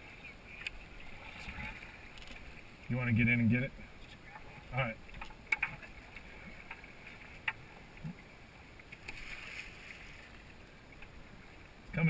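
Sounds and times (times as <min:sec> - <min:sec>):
water moving around raft: 0:00.0 - 0:12.0.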